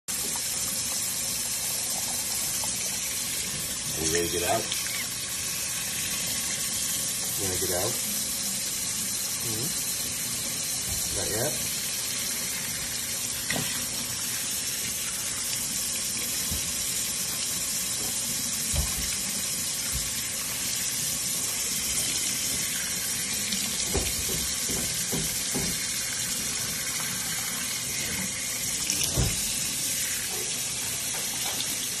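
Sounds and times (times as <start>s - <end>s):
tap running into metal sink: 23.6s - 26.0s, 28.8s - 29.5s.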